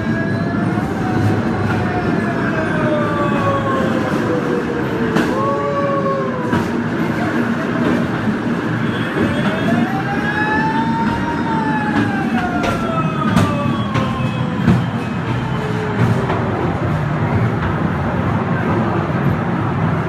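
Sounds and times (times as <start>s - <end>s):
wheels rumbling on rail: 0.0s - 20.0s
wheel squeals: 10.7s - 16.3s.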